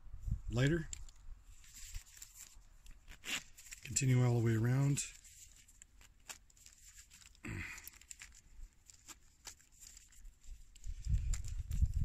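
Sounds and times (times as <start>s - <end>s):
zipper being pulled: 3.1s - 3.5s.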